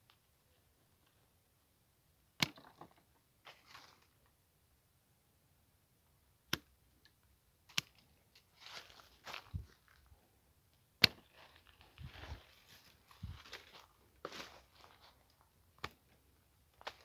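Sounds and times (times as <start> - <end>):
branches rustling: 3.4 - 4.3, 7.7 - 10.3, 11.0 - 17.0
pruning shears snapping: 7.7 - 8.0, 11.0 - 11.2.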